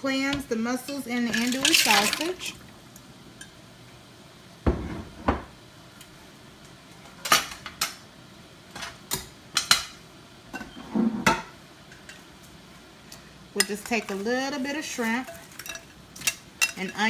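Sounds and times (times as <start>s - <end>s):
utensils and dishes clinking: 1.3s - 2.5s, 15.0s - 17.0s.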